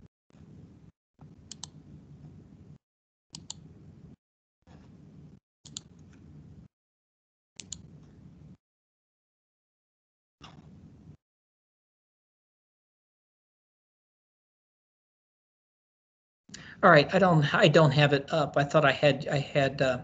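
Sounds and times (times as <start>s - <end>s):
computer mouse clicking: 1.5s - 1.8s, 3.4s - 3.6s, 5.7s - 6.2s, 7.6s - 7.9s.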